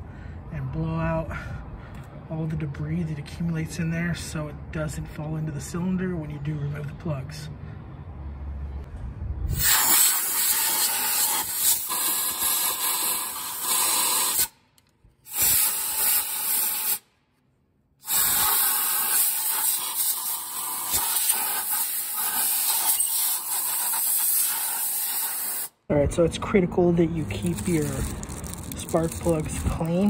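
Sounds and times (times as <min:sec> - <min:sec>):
compressed air blowgun blasting: 0:09.5 - 0:14.6, 0:15.2 - 0:17.1, 0:18.0 - 0:25.7.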